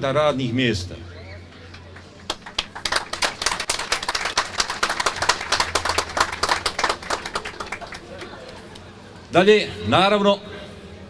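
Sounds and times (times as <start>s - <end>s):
crowd applauding: 1.8s - 8.7s.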